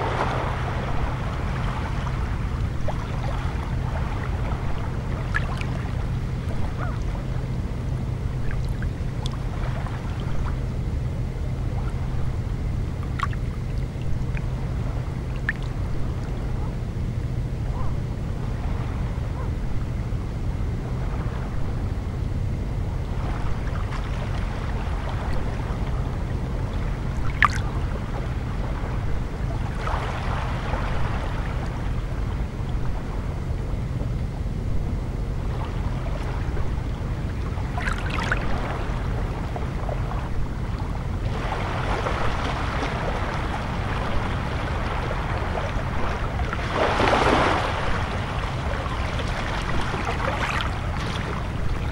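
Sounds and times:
water splashes: 0.0 - 16.7, 23.1 - 33.9, 35.4 - 51.9
low rumble: 0.0 - 51.9
waves washing over pebbles: 27.0 - 27.8, 41.3 - 51.9.

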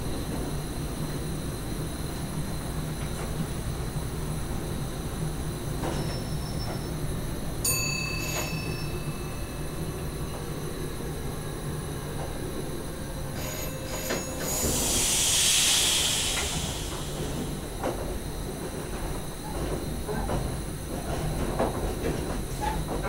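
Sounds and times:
electric train rumbling: 0.0 - 23.0
loud hiss: 13.4 - 17.7.

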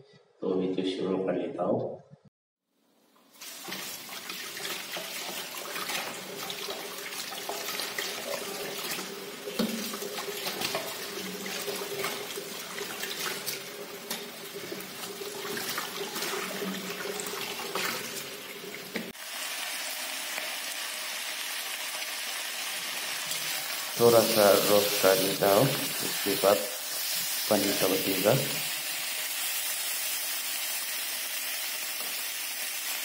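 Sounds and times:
splashing and knocks washing meat: 3.3 - 19.2
tap running into sink: 8.8 - 11.0
steady hiss: 23.3 - 29.3.

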